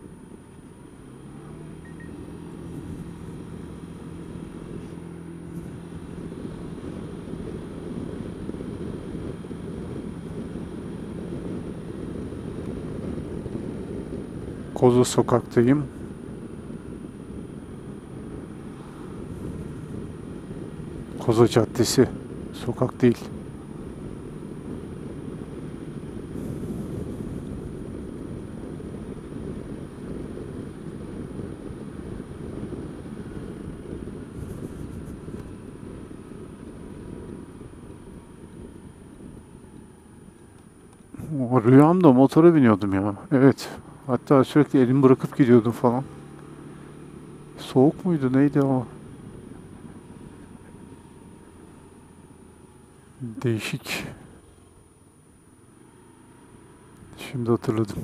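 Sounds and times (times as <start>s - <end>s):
wind and road noise: 0.0s - 58.0s
scooter engine running: 23.3s - 41.4s.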